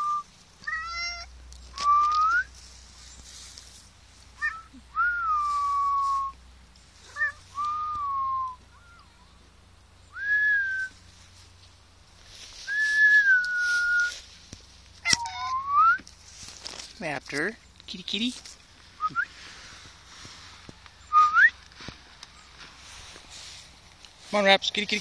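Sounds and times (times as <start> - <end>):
person whistling: 5.0 - 6.3, 7.6 - 8.6, 10.2 - 10.9, 12.7 - 14.1, 19.0 - 19.4, 21.1 - 21.6.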